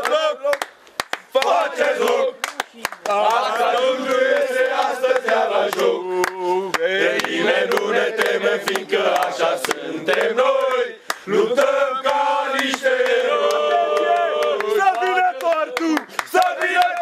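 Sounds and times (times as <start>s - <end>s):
men singing a chant: 3.1s - 17.0s.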